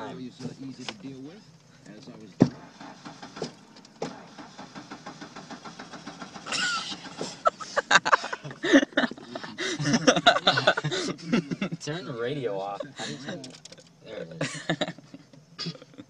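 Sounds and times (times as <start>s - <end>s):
people talking: 0.0s - 2.5s, 7.5s - 15.0s, 15.6s - 16.0s
engine and road rumble: 0.0s - 16.0s.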